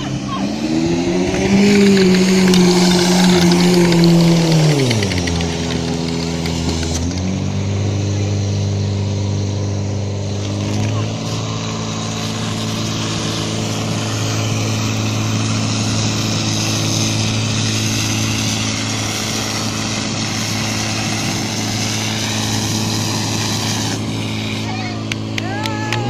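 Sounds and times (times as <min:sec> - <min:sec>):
pump engine running: 0:00.0 - 0:26.0
water jets hissing: 0:10.6 - 0:25.2.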